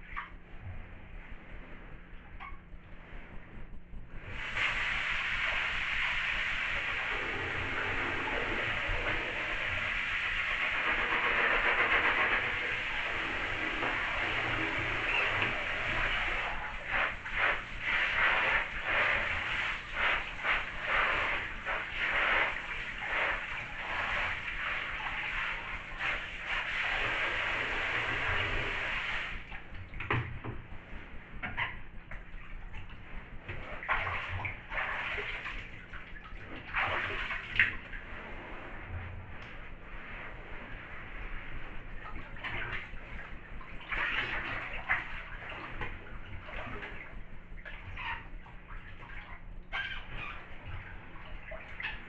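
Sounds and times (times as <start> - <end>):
bathwater sloshing and splashing: 0.0 - 52.0
shower spray hissing on fabric: 4.3 - 29.6, 33.2 - 35.7.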